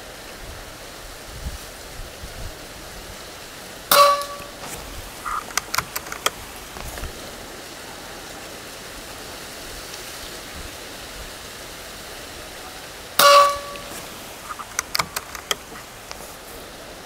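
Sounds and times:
wind on microphone: 0.4 - 3.4, 4.4 - 7.6
brief ringing tone: 3.9 - 4.6, 13.2 - 14.0.

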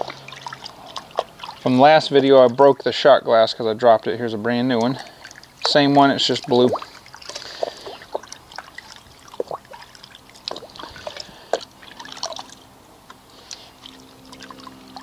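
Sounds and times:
glass swishing in soapy water: 0.0 - 2.2, 4.8 - 12.6.

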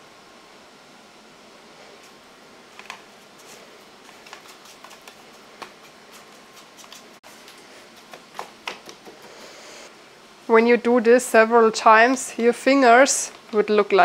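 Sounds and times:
breadcrumbs rustling and crackling: 2.8 - 9.2.

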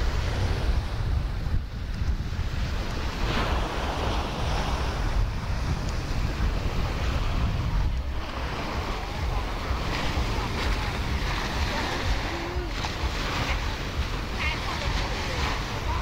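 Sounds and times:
surf washing on beach: 0.0 - 16.0
wind rumbling on microphone: 0.0 - 16.0.

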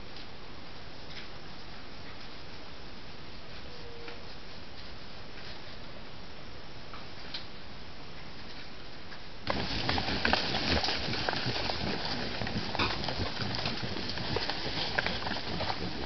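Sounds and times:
microphone hiss: 0.0 - 16.0
rustling and crunching leaf litter: 9.5 - 16.0.

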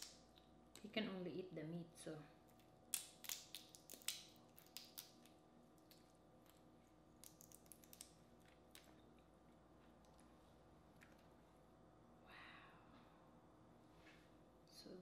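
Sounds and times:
shell cracking by hand: 2.5 - 6.6, 7.2 - 8.9.

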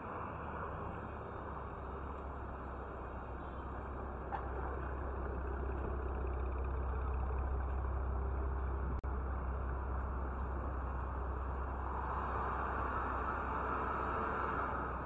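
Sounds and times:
street traffic rumble: 0.0 - 15.0.

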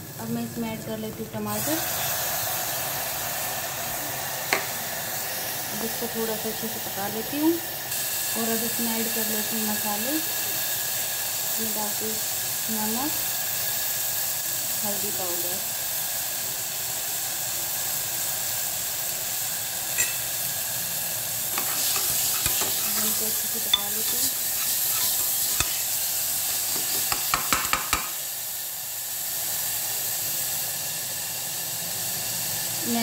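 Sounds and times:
vegetables sizzling in a pot: 0.0 - 33.0
spoon scraping and clinking metal pot: 20.0 - 20.4, 21.5 - 28.1.

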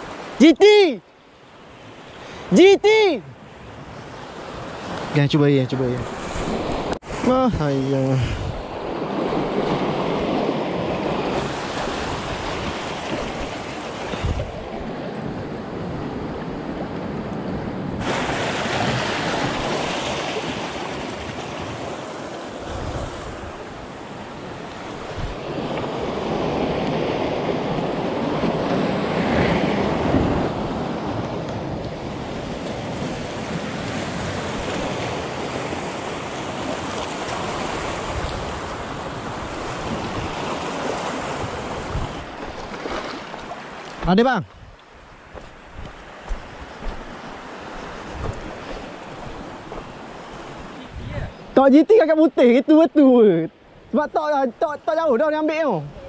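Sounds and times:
sea waves washing: 0.0 - 56.0
wind buffeting microphone: 6.0 - 51.5.

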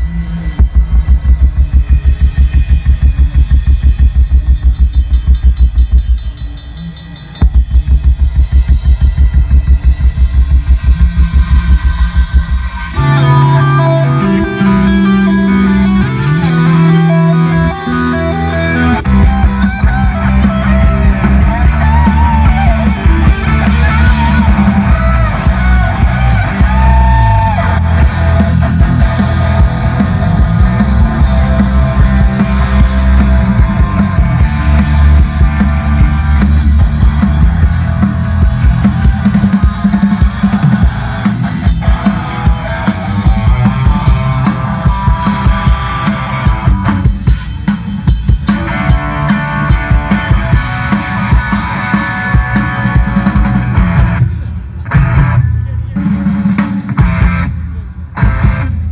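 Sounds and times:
drum kit: 0.0 - 58.9
rock music over loudspeakers: 0.0 - 58.9
guitar holding low notes: 9.1 - 47.3.

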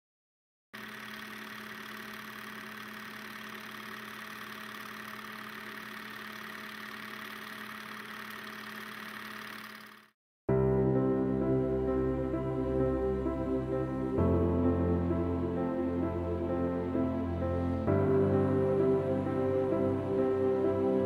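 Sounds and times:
film projector whirring and clicking: 0.8 - 10.2.

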